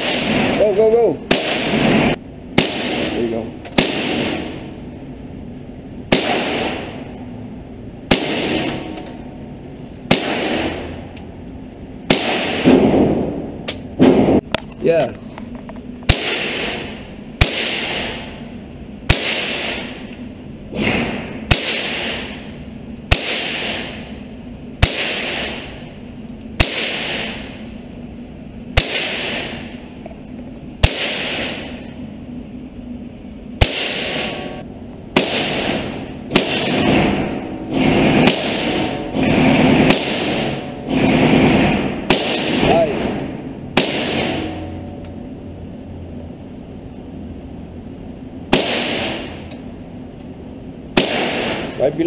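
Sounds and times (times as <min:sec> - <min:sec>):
rifle shots echoing: 0:00.0 - 0:05.0, 0:06.1 - 0:07.2, 0:08.0 - 0:09.4, 0:10.0 - 0:11.1, 0:12.0 - 0:14.4, 0:16.0 - 0:26.0, 0:26.6 - 0:27.8, 0:28.7 - 0:29.9, 0:30.8 - 0:32.0, 0:33.6 - 0:45.0, 0:48.5 - 0:49.7, 0:50.9 - 0:52.0.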